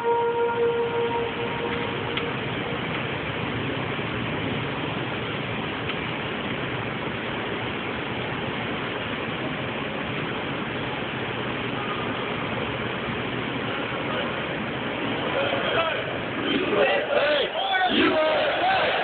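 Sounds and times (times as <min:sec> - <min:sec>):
held musical note: 0:00.0 - 0:02.5
hushed stadium crowd murmur: 0:00.0 - 0:19.0.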